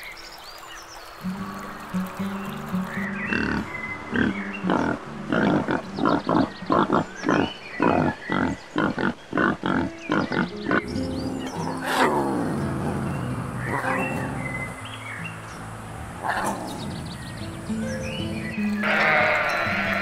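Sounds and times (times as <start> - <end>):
lion roaring: 3.3 - 14.8, 16.0 - 17.5
wild boar grunting: 3.3 - 14.9, 15.7 - 17.7.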